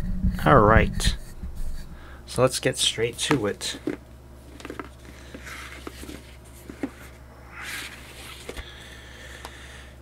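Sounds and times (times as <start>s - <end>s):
packaging scraping and rustling: 3.8s - 8.6s.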